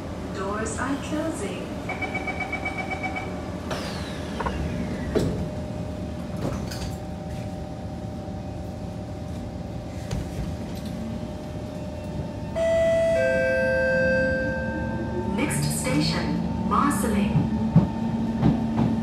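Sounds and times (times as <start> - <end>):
train door warning beeps: 1.8 - 3.5, 12.0 - 15.4
sliding doors closing: 3.7 - 5.5.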